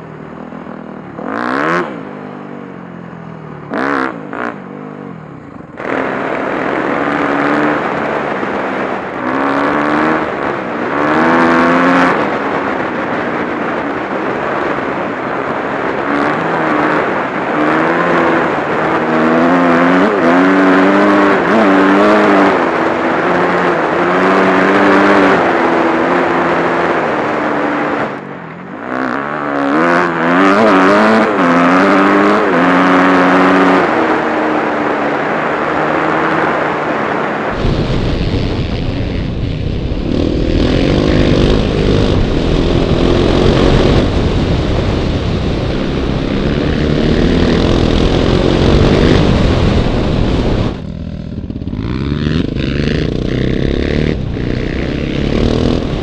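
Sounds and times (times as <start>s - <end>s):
dirt bike engine revving: 1.0s - 2.4s, 3.6s - 56.0s
wind rumble on microphone: 33.0s - 56.0s.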